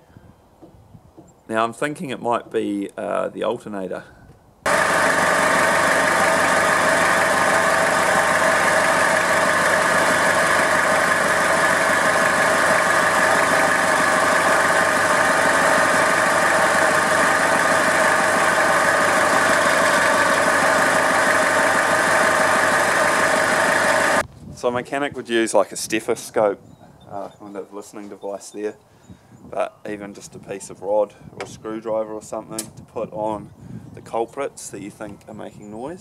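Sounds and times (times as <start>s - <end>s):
diesel engine idling: 4.7s - 24.2s.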